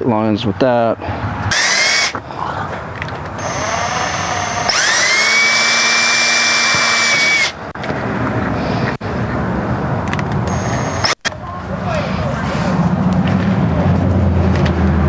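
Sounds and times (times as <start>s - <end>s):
cordless drill whining: 1.5s - 2.2s, 3.4s - 7.7s, 10.5s - 11.2s.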